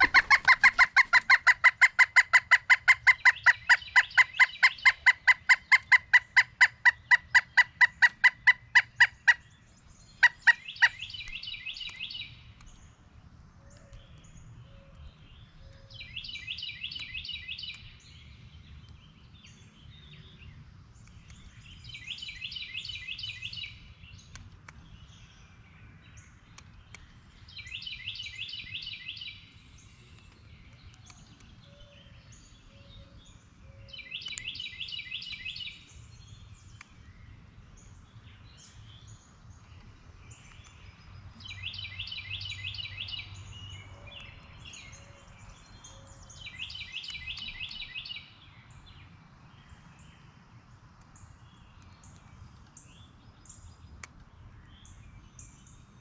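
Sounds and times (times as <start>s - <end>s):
woodpecker laughing call: 0.0s - 9.5s, 10.2s - 11.4s.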